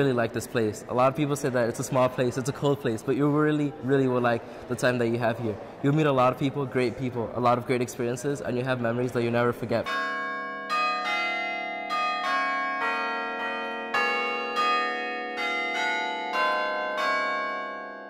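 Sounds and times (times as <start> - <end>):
tuned bells playing slow melody: 9.9 - 18.0.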